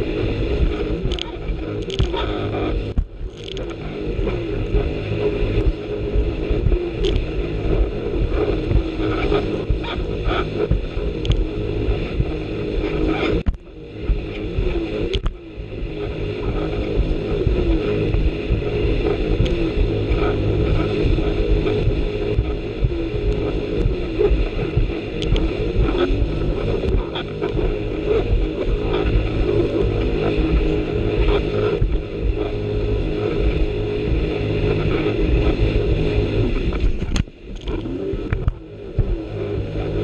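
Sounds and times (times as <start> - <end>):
jet ski engine running: 0.0 - 40.0
hull knocking on waves: 2.9 - 3.3.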